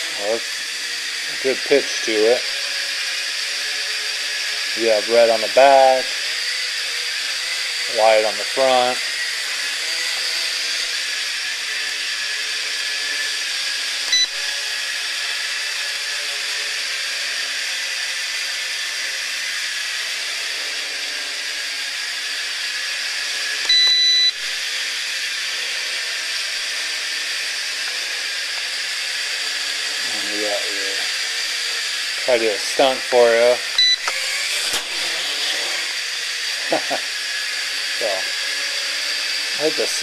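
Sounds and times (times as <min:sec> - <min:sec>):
drone propellers whining: 0:00.0 - 0:40.0
electronic beeps: 0:23.7 - 0:24.4, 0:33.8 - 0:34.2.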